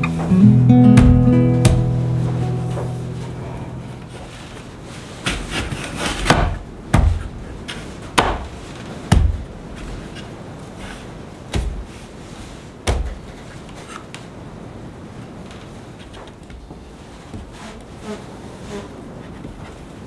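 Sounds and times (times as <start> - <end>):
wooden knocks with dull thuds: 1.0 - 2.0, 6.2 - 7.4, 8.2 - 9.5, 12.8 - 13.2.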